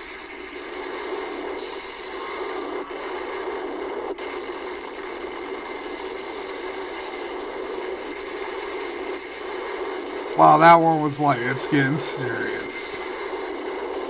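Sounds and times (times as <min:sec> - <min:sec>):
movie sound effects through tv speaker: 0:00.0 - 0:14.0.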